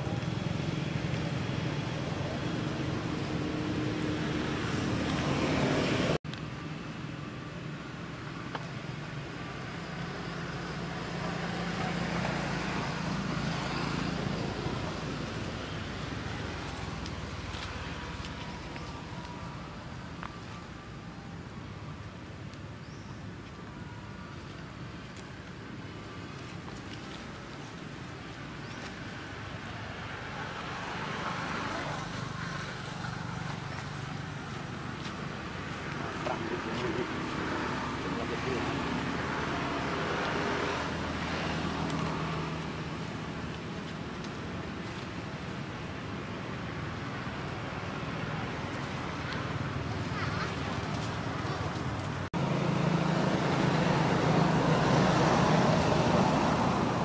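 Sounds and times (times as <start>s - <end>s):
outdoor background noise: 0.0s - 57.0s.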